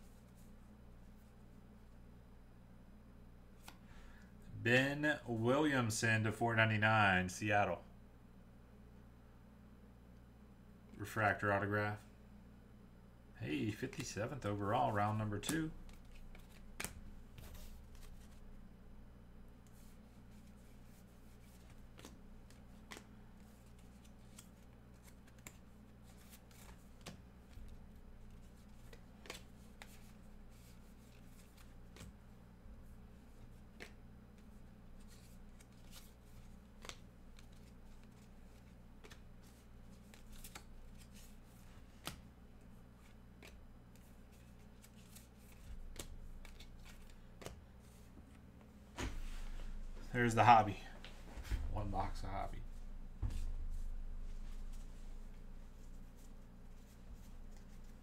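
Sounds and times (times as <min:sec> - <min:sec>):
steady low hum: 0:00.0 - 0:58.0
trading cards flipped by hand: 0:03.6 - 0:03.8, 0:15.5 - 0:18.4, 0:19.6 - 0:32.2, 0:33.3 - 0:42.3, 0:43.0 - 0:48.4.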